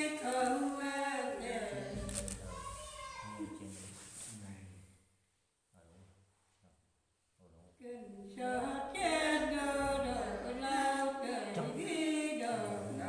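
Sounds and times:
elderly woman singing unaccompanied: 0:00.0 - 0:02.2, 0:07.8 - 0:13.0.

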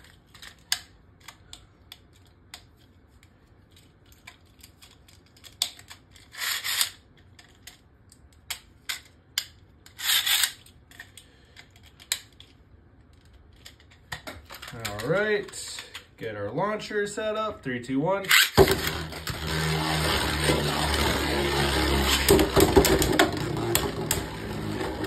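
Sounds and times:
plastic scraping rubs: 0:18.3 - 0:25.0.

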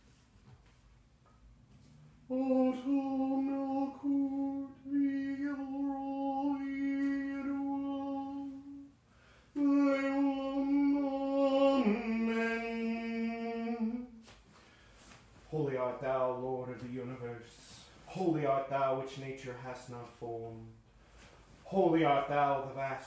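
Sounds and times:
man intoning long tones: 0:02.3 - 0:08.9, 0:09.6 - 0:14.1.

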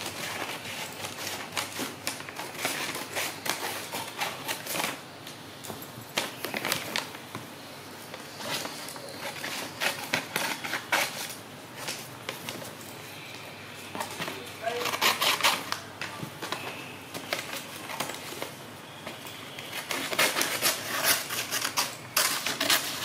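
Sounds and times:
paper crinkling and rustling: 0:00.0 - 0:05.1, 0:05.7 - 0:23.0
scissors snipping paper: 0:14.0 - 0:18.6, 0:19.6 - 0:23.0.

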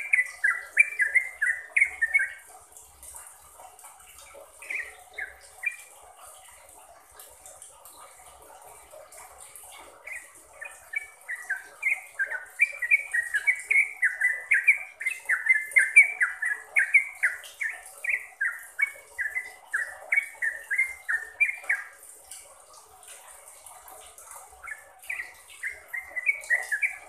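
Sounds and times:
bulbul singing whistled notes: 0:00.0 - 0:02.5, 0:10.1 - 0:22.0, 0:24.6 - 0:27.0.

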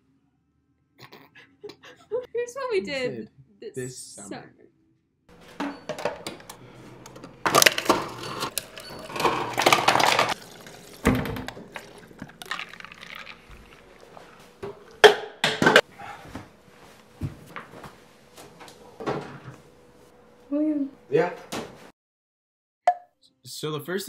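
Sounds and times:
water dispenser running into glass: 0:07.5 - 0:15.1.

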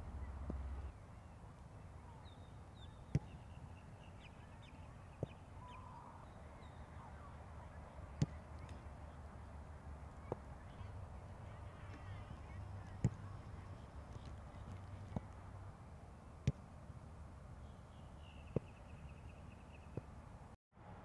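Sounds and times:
faint bird chirps: 0:00.0 - 0:08.8, 0:17.6 - 0:20.1.

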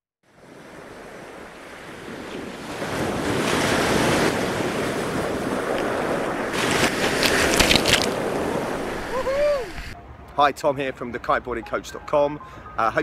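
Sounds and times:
ocean surf breaking: 0:00.4 - 0:10.0
wind on microphone: 0:00.4 - 0:10.0.

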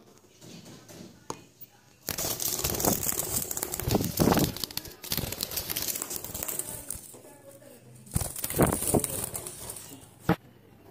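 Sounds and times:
budgies fluttering in cage: 0:02.1 - 0:10.2.

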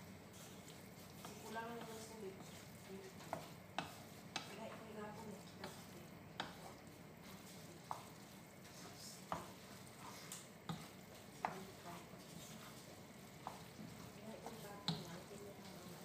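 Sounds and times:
faint steady sizzle: 0:00.0 - 0:16.0
noodles stirred in frying pan: 0:00.0 - 0:16.0
utensil tapping against pan: 0:01.1 - 0:06.9, 0:07.5 - 0:08.2, 0:09.2 - 0:16.0.

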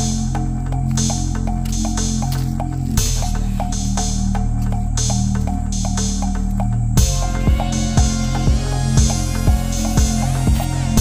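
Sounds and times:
music with steady beat: 0:00.0 - 0:11.0
sustained bass notes: 0:00.0 - 0:11.0.

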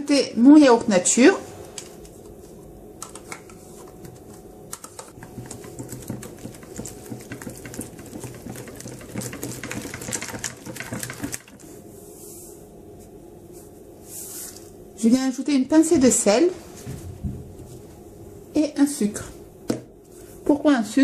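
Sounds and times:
whisk clicking against plastic bowl: 0:04.8 - 0:11.6.

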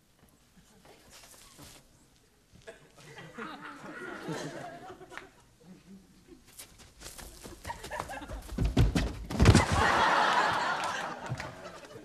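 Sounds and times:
studio audience laughing: 0:02.7 - 0:05.4, 0:09.6 - 0:12.0
heavy thumps: 0:08.4 - 0:09.8.

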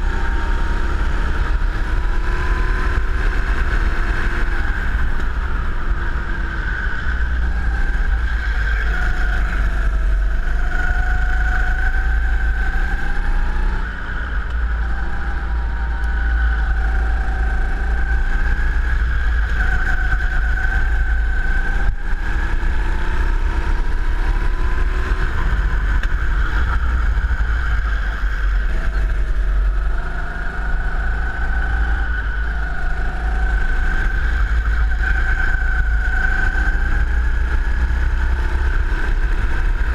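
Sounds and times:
go-kart engine running hard: 0:00.0 - 0:39.9.

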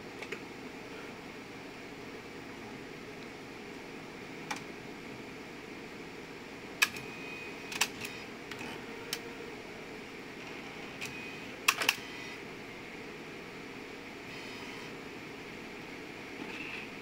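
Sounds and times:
fan hum: 0:00.0 - 0:17.0
sharp mechanical clicks: 0:11.0 - 0:12.1.

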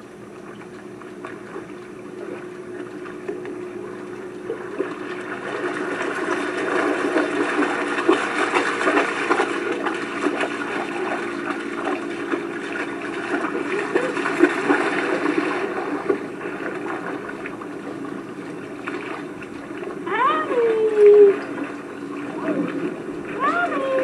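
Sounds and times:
water gently lapping: 0:00.0 - 0:24.0
dog splashing through water: 0:04.5 - 0:18.0.

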